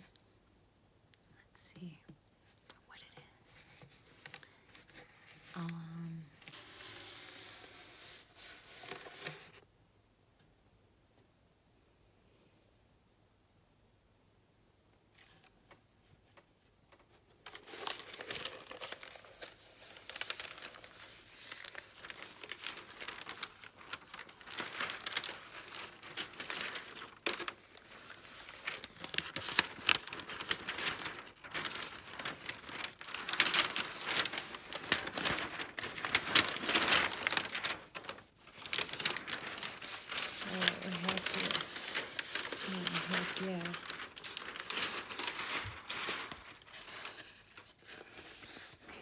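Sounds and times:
paper crinkling and crackling: 0:03.1 - 0:09.6, 0:17.0 - 0:49.0.

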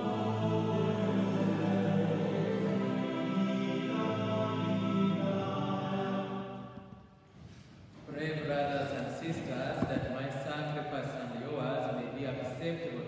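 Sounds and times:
church hymn music: 0:00.0 - 0:13.0.

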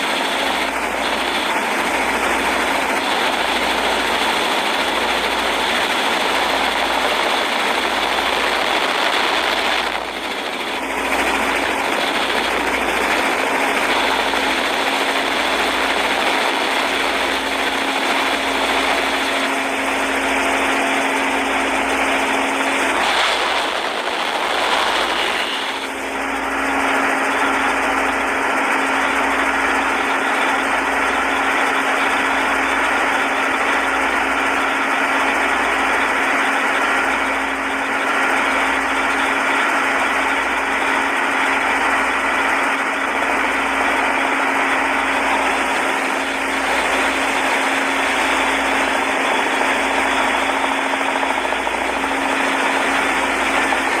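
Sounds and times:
motorboat engine humming: 0:00.0 - 0:54.0
water rushing: 0:21.1 - 0:26.2.

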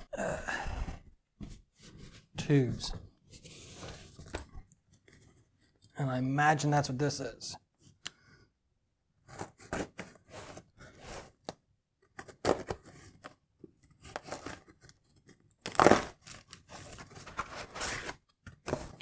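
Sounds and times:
tape and cardboard tearing: 0:15.6 - 0:18.2.

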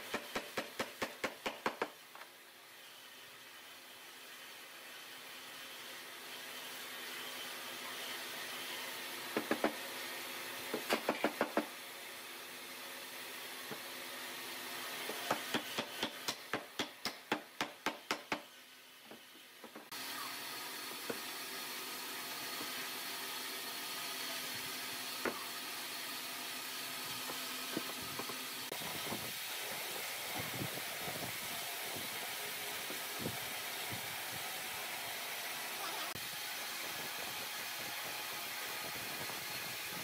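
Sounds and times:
wooden mallet knocking wood: 0:00.1 - 0:02.0, 0:09.4 - 0:09.8, 0:15.3 - 0:18.5.

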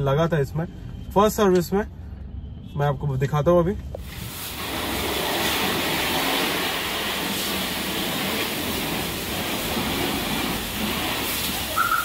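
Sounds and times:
pressure washer jet spraying: 0:04.0 - 0:12.0.

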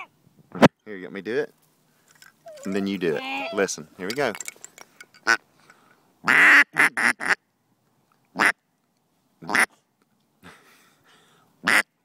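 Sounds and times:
duck call quacking: 0:06.2 - 0:07.4, 0:08.4 - 0:08.6, 0:09.4 - 0:09.7, 0:11.6 - 0:11.9.

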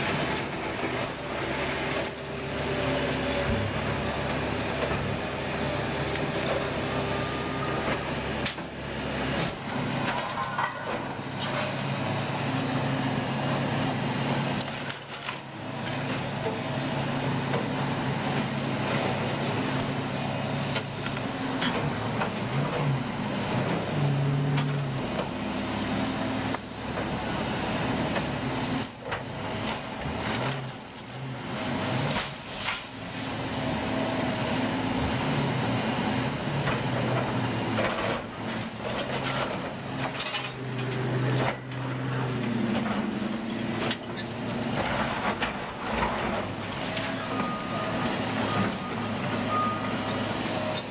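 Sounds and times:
excavator diesel engine: 0:00.0 - 0:50.9.

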